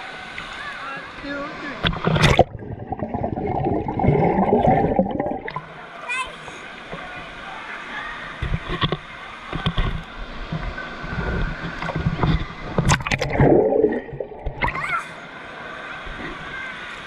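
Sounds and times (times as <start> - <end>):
water sloshing and splashing: 0.2 - 5.9, 8.3 - 15.0.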